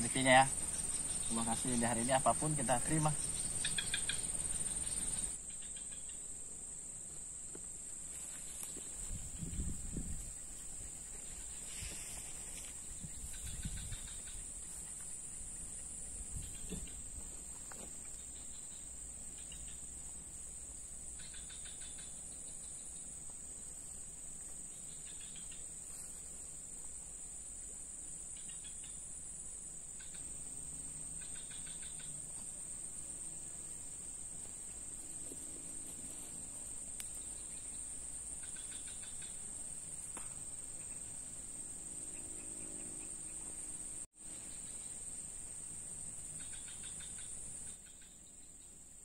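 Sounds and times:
high-pitched insect drone: 0:00.0 - 0:06.3, 0:07.6 - 0:23.2, 0:24.6 - 0:26.3, 0:27.1 - 0:49.0.

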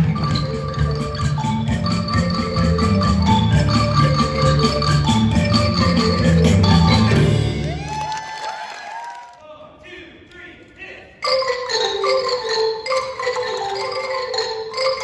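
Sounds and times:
xylophones and glockenspiels playing: 0:00.0 - 0:07.7, 0:11.2 - 0:15.0.

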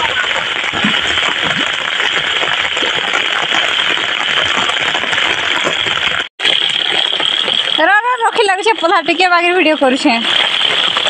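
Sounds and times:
heavy rain falling: 0:00.0 - 0:11.0.

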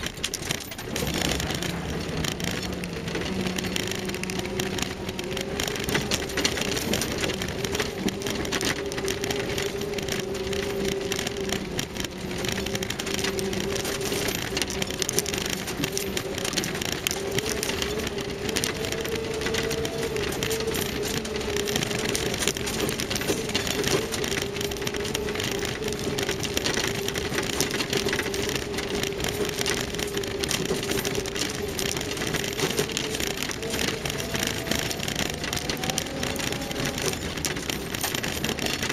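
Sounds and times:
rattling and crunching on stones: 0:00.0 - 0:38.9
vehicle engine whine: 0:00.0 - 0:38.9.

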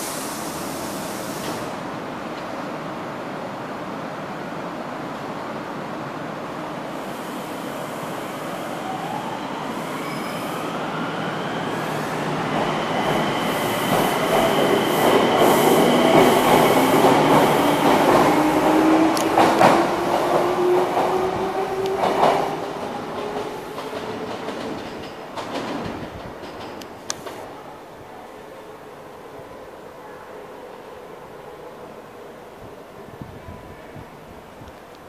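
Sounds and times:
train running noise: 0:11.3 - 0:27.7.

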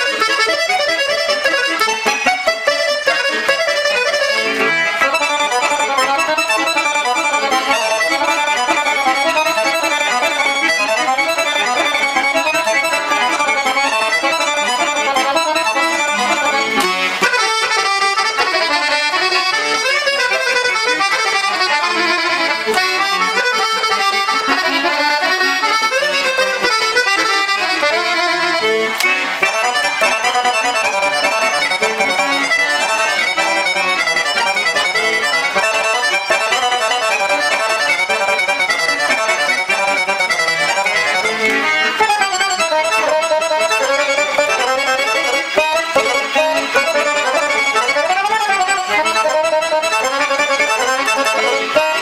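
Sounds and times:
piano accordion playing quick melody: 0:00.0 - 0:52.0.

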